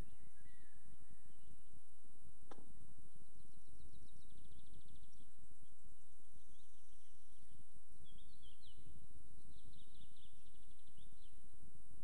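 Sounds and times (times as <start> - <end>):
bird trill: 0.0 - 1.6
small birds singing: 0.0 - 1.9, 2.6 - 12.0.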